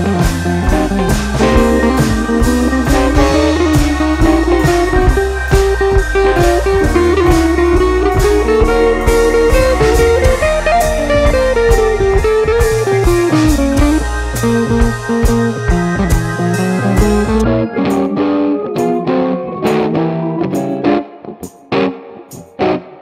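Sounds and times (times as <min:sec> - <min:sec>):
steady drum beat: 0:00.0 - 0:18.1
bluesy electric guitar music: 0:00.0 - 0:23.0.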